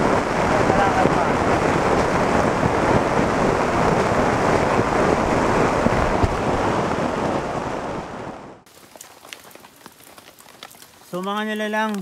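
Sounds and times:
wind buffeting microphone: 0.0s - 8.6s
rain on tent fabric: 0.0s - 12.0s.

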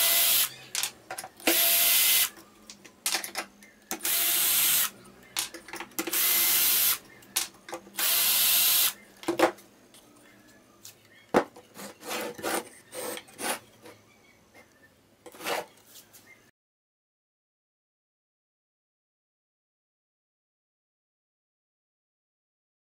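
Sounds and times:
cordless drill driving screws: 0.0s - 0.5s, 1.4s - 2.4s, 4.0s - 4.9s, 6.1s - 7.0s, 8.0s - 9.0s.

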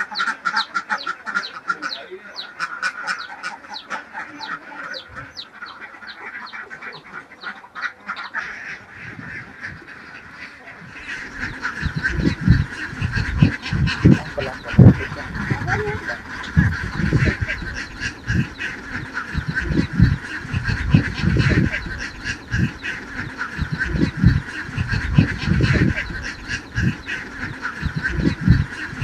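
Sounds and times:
flock of ducks quacking: 0.0s - 29.0s
low thumps: 11.8s - 18.6s.

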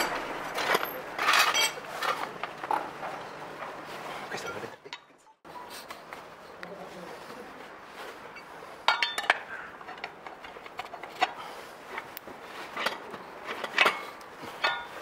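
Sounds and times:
metal tyre lever clinking on rim: 8.4s - 11.4s, 12.8s - 15.0s.

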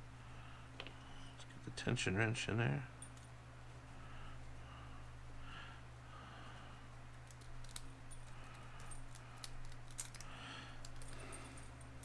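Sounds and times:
lock pick clicking and scraping: 7.3s - 11.2s.

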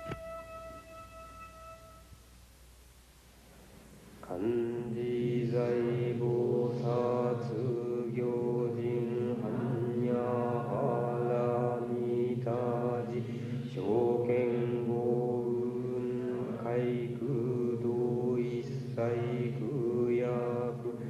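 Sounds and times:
man chanting in monotone: 4.2s - 21.0s.

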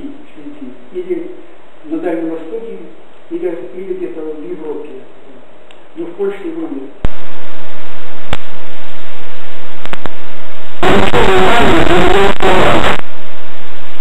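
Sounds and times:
loud distorted static: 7.0s - 14.0s.

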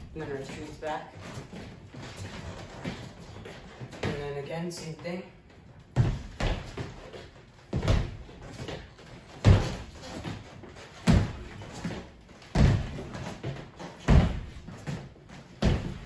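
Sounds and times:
feet thudding on wooden floor: 5.9s - 16.0s.

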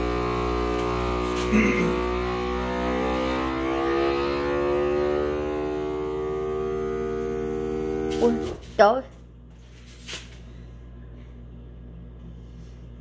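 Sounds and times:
vacuum sealer pump running: 0.0s - 8.7s.

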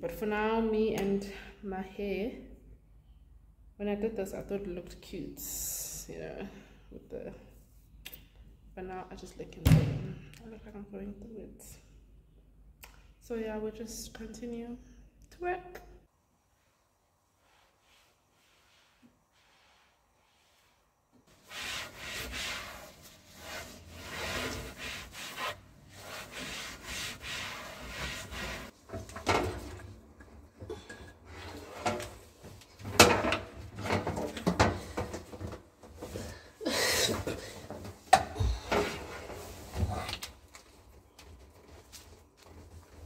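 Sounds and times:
rubbing and scraping strokes: 17.3s - 28.9s.

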